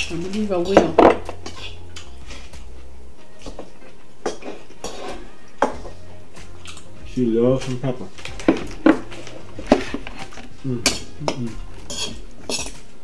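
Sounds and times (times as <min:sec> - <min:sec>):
cutlery clinking against bowls: 0:00.0 - 0:02.6, 0:03.4 - 0:05.9, 0:08.4 - 0:12.9.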